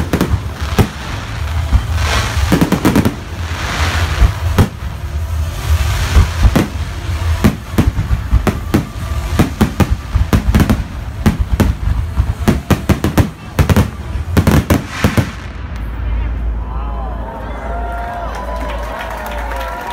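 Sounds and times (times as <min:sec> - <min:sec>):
fireworks bangs: 0:00.0 - 0:16.6
hiss of rising fireworks: 0:00.0 - 0:16.6.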